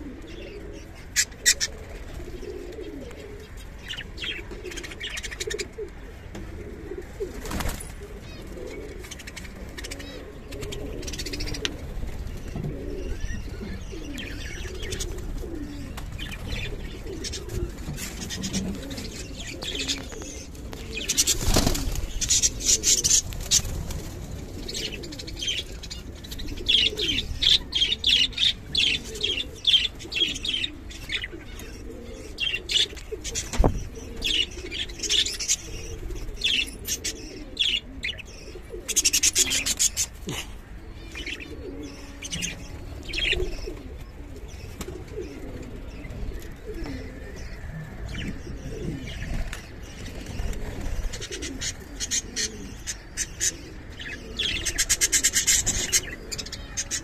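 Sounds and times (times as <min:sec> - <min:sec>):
pigeons cooing: 0:00.0 - 0:57.0
wings flapping: 0:07.3 - 0:08.0, 0:21.1 - 0:25.1.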